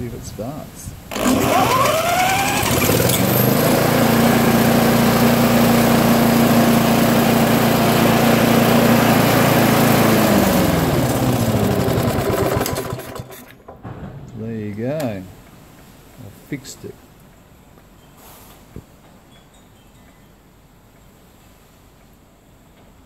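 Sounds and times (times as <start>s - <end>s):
lawnmower engine starting and running: 1.1s - 13.8s.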